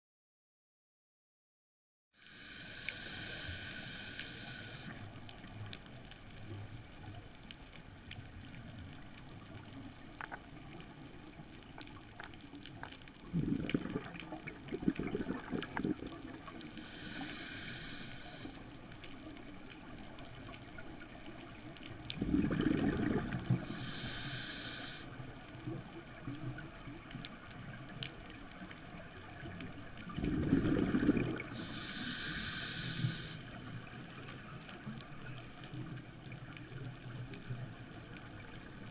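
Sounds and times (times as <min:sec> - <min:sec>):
regulator hissing inhalations: 0:02.2 - 0:05.0, 0:16.8 - 0:18.6, 0:23.6 - 0:25.2, 0:31.4 - 0:33.6
exhaled bubbles rumbling: 0:12.7 - 0:16.8, 0:19.2 - 0:24.0, 0:28.8 - 0:32.0.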